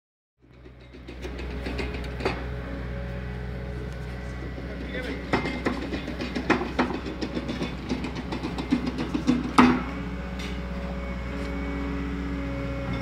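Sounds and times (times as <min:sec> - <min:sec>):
engine knocks and pops: 0:00.4 - 0:02.6, 0:03.9 - 0:10.7.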